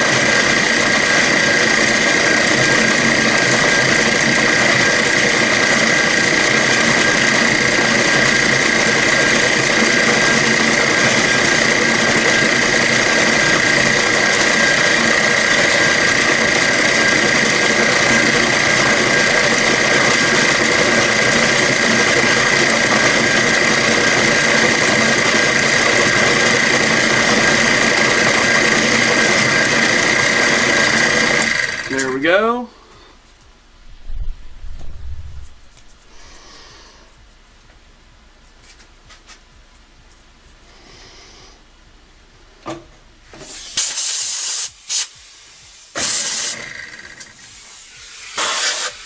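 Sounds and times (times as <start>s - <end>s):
milling machine cutting metal whine: 0.0s - 32.3s.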